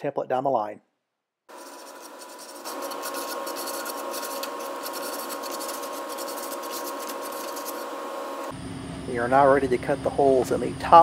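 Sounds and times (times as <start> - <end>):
sandpaper rasping on wood: 1.5 - 8.5
steady hum: 1.5 - 11.0.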